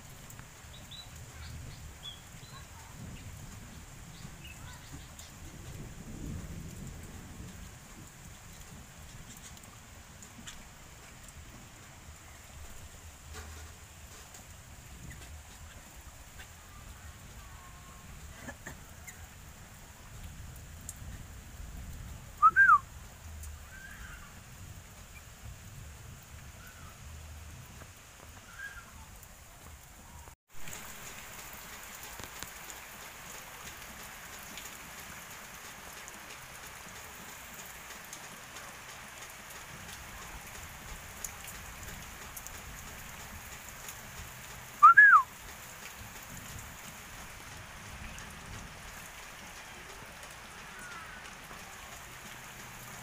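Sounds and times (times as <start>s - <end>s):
rain: 0.0s - 53.0s
bird whistling: 22.4s - 22.8s, 44.8s - 45.3s.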